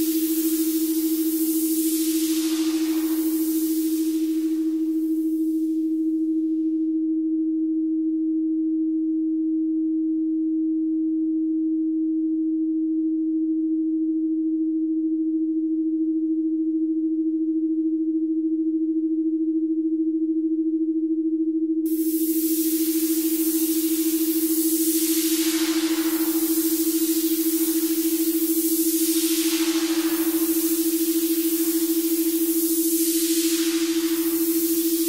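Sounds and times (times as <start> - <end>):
high hiss: 0.0 - 6.2, 21.9 - 35.0
steady electronic sine tone: 0.0 - 35.0.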